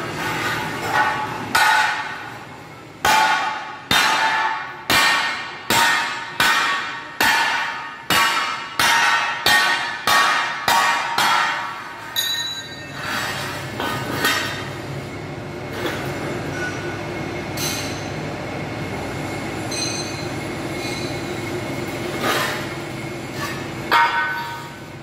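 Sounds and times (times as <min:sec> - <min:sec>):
sharp metallic clanks: 0:03.0 - 0:13.1.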